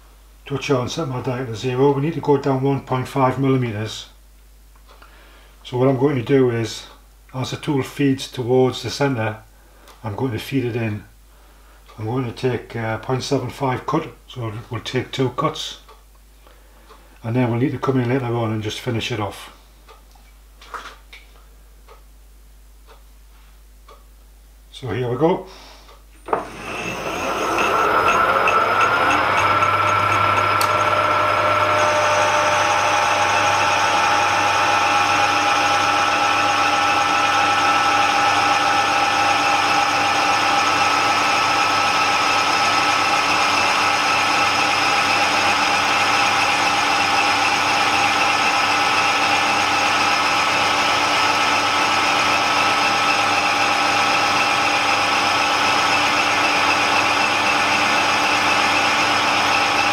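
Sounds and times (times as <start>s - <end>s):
metal lathe motor whine: 26.2s - 59.9s.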